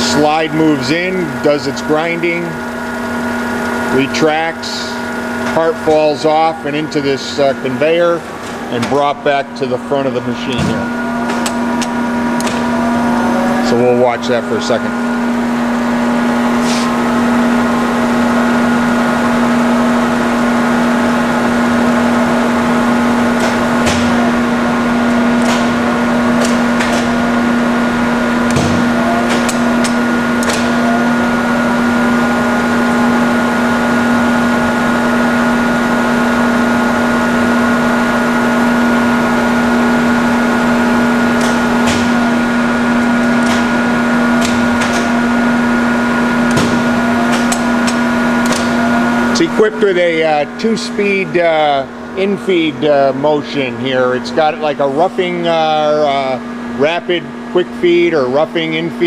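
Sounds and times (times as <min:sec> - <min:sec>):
grinder machine hum and whine: 0:00.0 - 0:59.0
sharp clicks and clanks: 0:28.4 - 0:30.8, 0:43.4 - 0:45.2, 0:46.4 - 0:48.8.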